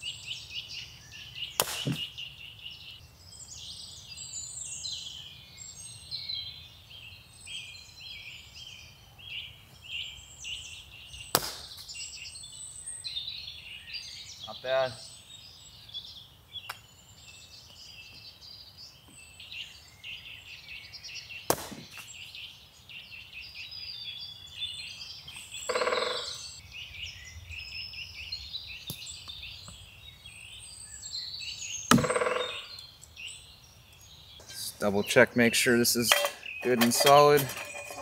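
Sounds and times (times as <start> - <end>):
songbirds chirping and singing: 0.0 - 38.0
sharp knocks: 1.6 - 2.1, 31.9 - 32.6.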